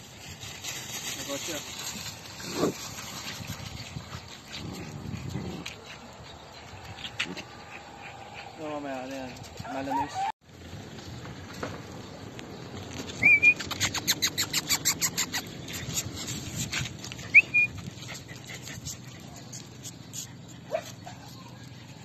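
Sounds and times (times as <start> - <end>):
small dogs yapping: 1.9 - 10.3, 13.2 - 22.0
high squeaky dog whines: 9.6 - 10.3, 13.2 - 15.4, 17.2 - 17.8.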